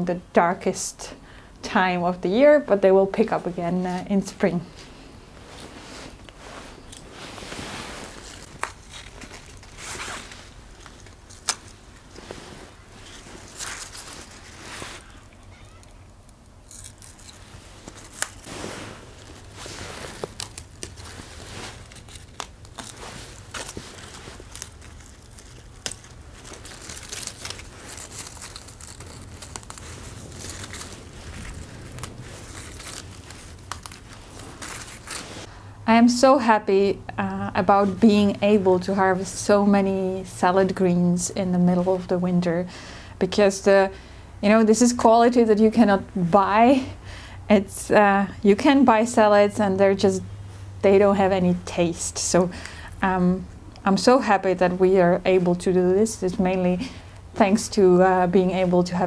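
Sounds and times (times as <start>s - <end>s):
leaves rustling and crackling: 3.3s - 35.5s.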